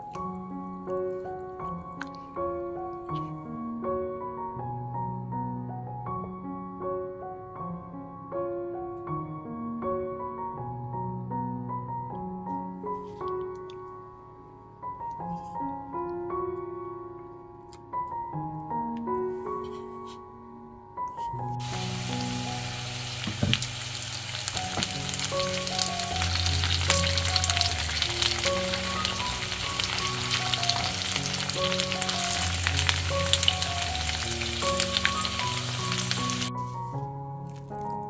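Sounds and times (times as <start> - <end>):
potatoes and onions sizzling in oil: 21.6 - 36.6.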